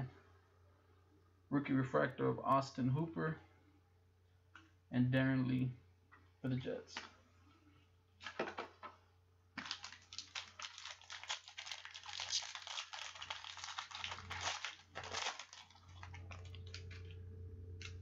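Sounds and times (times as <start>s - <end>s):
foil wrapper crinkling: 9.6s - 17.2s.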